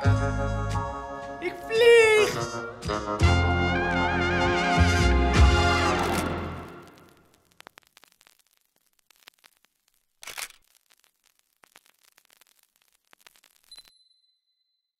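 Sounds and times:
brass music: 1.5s - 7.0s
static clicks and crackles: 5.9s - 13.9s.

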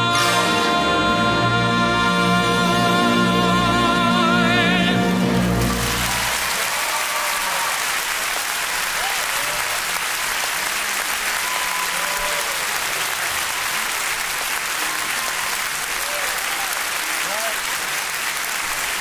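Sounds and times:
audience applauding: 5.2s - 19.0s.

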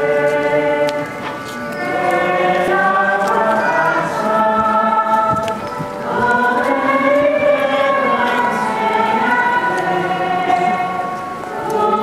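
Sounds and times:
choir singing a slow hymn: 0.0s - 12.0s.

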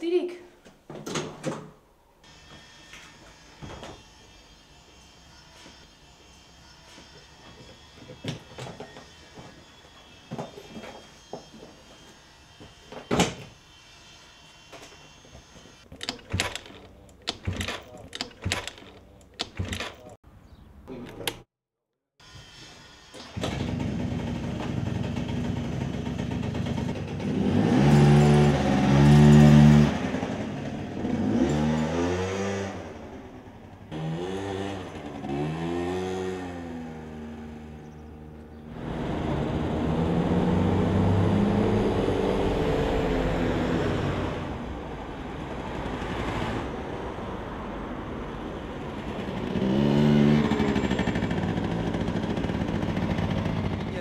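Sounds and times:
scooter engine revving: 23.2s - 47.3s, 48.3s - 54.0s.

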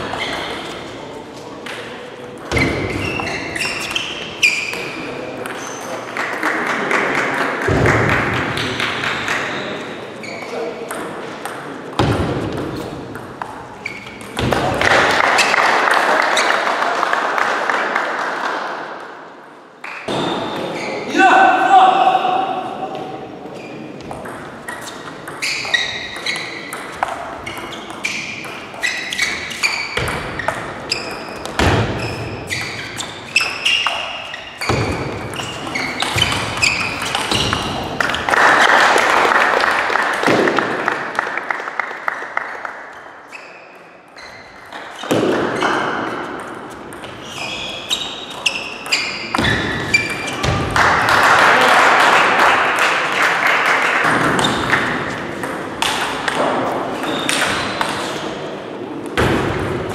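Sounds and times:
shoes squeaking and shuffling: 2.5s - 4.9s, 24.7s - 26.7s, 27.4s - 38.1s, 46.7s - 50.6s
spectators applauding: 38.2s - 42.9s, 50.8s - 54.1s.

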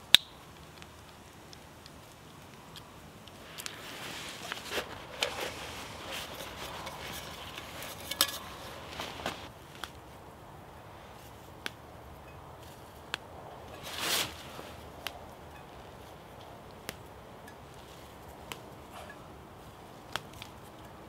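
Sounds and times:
stems snapping: 0.0s - 10.0s, 11.5s - 11.9s, 12.6s - 13.3s, 14.0s - 15.3s, 16.1s - 17.1s, 18.3s - 18.8s, 20.0s - 20.7s
leaves rustling in hand: 0.4s - 20.9s.

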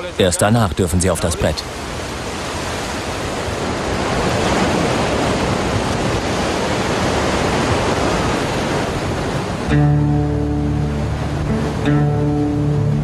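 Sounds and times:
ocean surf: 0.0s - 13.0s
strong wind: 1.6s - 13.0s.

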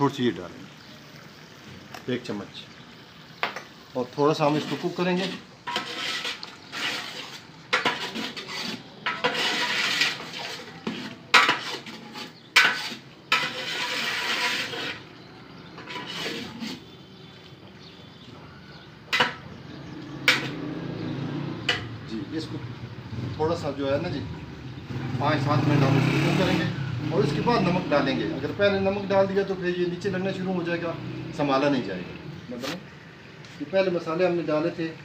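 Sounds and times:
chicken frying: 0.0s - 35.0s
metal ladle scraping a pot: 4.3s - 17.3s, 19.1s - 22.2s
ladle clanking on pot: 5.2s - 15.0s, 19.1s - 20.6s, 21.6s - 22.0s.

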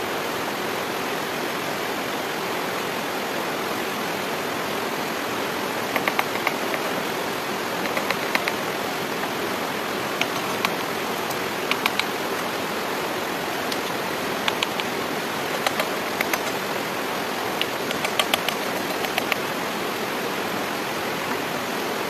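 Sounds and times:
steady rushing noise: 5.4s - 20.9s
wooden sticks clicking: 6.0s - 6.9s, 7.8s - 8.6s, 10.2s - 12.5s, 13.7s - 16.6s, 17.6s - 19.4s.

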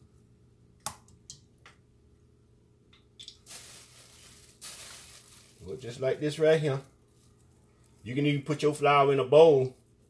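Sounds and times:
plastic bag rustling: 3.4s - 9.0s.

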